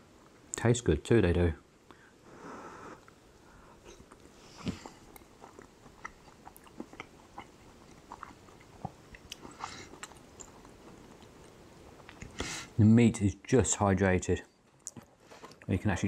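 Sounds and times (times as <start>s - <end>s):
man chewing food: 2.7s - 12.8s, 14.6s - 15.8s.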